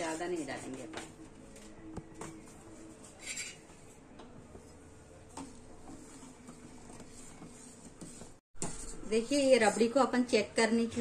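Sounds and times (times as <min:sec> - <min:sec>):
ladle scraping steel pot: 0:03.2 - 0:03.7, 0:05.9 - 0:10.1.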